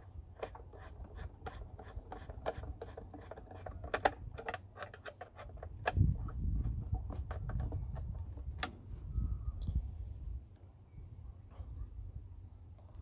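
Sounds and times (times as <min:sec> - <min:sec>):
plastic case clicking and scraping: 0:00.3 - 0:08.7.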